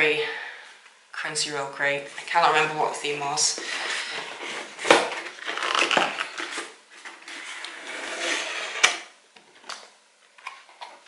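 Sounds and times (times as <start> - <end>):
cardboard flaps rustling and scraping: 3.6 - 9.0.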